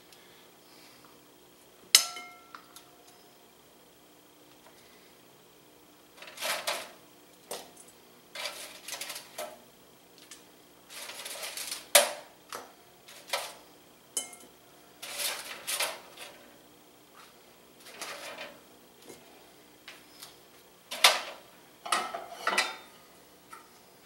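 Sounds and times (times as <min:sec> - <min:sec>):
metal tongs clacking on cookware: 0:14.2 - 0:14.5.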